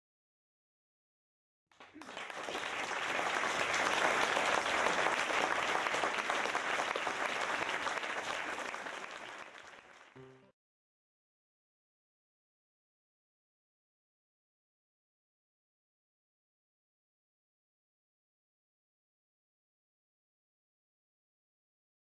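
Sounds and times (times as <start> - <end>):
audience applauding: 1.7 - 10.5.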